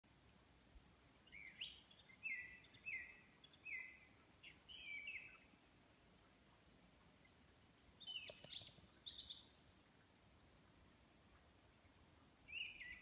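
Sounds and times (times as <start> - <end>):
faint background hiss: 0.0 - 13.0
songbird whistling song: 1.3 - 5.5, 8.0 - 9.5, 12.5 - 13.0.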